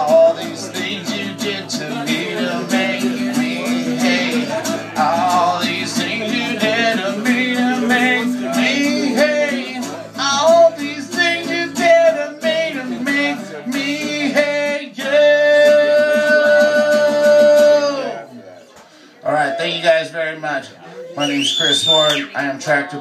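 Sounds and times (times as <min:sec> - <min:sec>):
acoustic guitar strumming: 0:00.0 - 0:18.3
man singing: 0:00.0 - 0:18.3.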